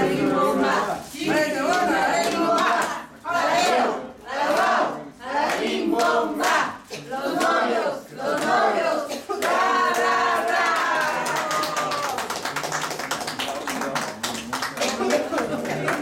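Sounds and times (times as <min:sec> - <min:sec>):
group singing in unison: 0:00.0 - 0:11.3
hands clapping: 0:01.7 - 0:03.0, 0:05.4 - 0:07.7, 0:08.3 - 0:08.8, 0:09.4 - 0:16.0.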